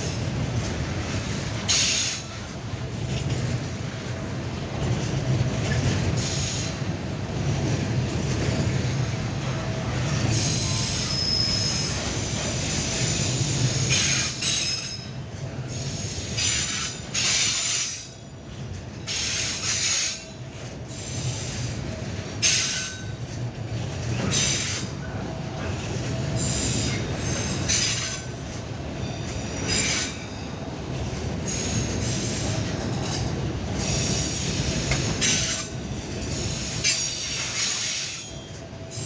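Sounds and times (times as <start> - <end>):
train wheels rumbling on rail: 0.0 - 39.0
high-pitched wheel squeals: 10.4 - 12.0.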